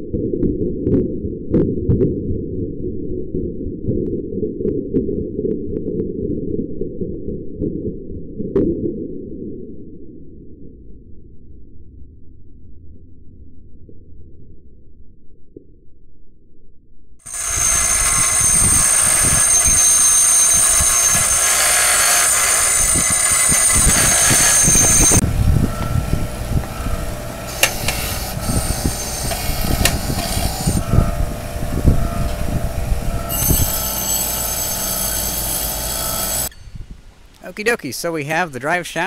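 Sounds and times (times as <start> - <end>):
bench grinder screeching on steel: 17.3 - 25.2, 25.8 - 36.6.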